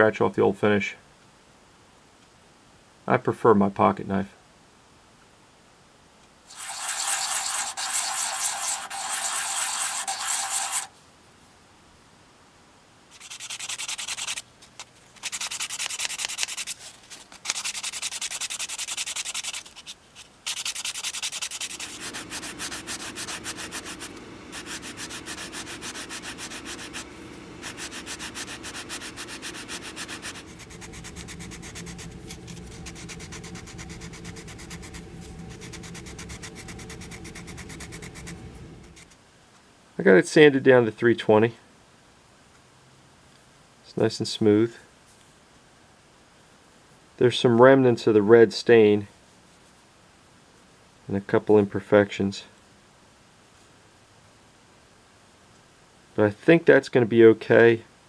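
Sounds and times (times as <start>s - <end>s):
knife blade scraping wood: 6.5s - 10.9s
sandpaper rubbing wood: 6.5s - 10.9s, 13.1s - 14.4s, 15.2s - 39.1s.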